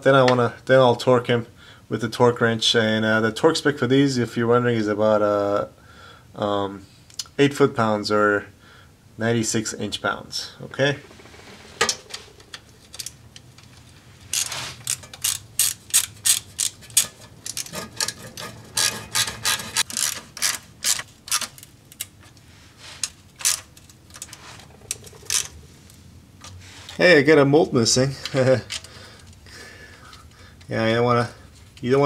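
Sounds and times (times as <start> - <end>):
hand ratchet clicking: 14.3 - 22.1.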